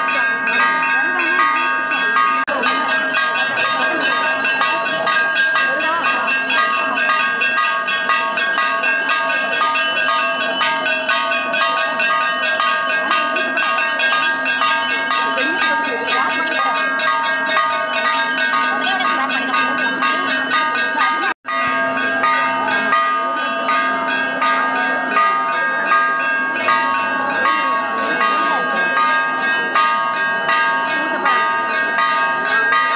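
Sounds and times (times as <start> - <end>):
murmur of crowd: 0.0 - 32.9
temple bells ringing: 0.0 - 32.9.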